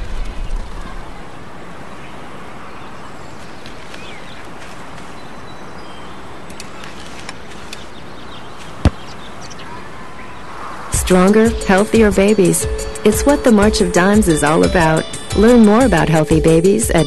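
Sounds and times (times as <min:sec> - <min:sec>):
faint bird chirps: 0:07.8 - 0:10.8.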